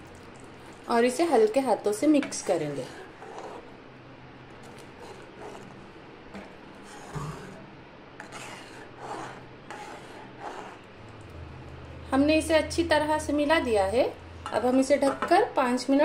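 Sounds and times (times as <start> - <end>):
spoon scraping a pan: 2.2 - 3.8, 4.6 - 7.6, 8.2 - 10.9.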